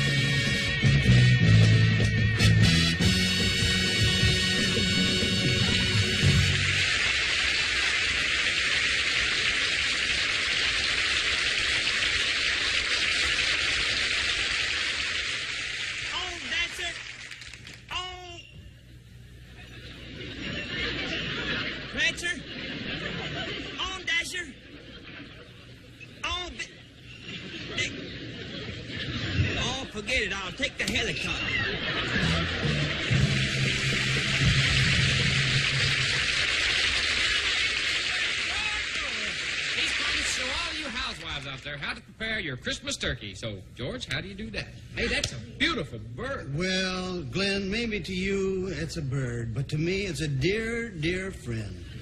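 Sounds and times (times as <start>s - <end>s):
low even hum: 0.0s - 52.0s
audience applauding: 4.0s - 17.9s, 31.7s - 41.8s
loud steady hiss: 5.8s - 17.3s, 32.2s - 41.2s.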